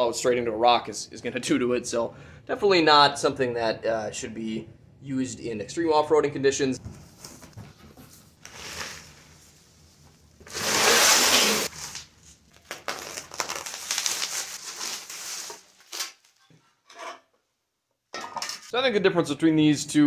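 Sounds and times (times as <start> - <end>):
packing material rustling: 10.4 - 16.5.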